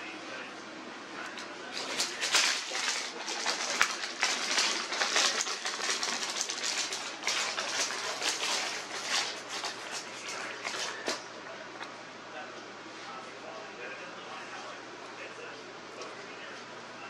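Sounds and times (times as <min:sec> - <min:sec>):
paper receipt crinkling: 0:01.7 - 0:11.3.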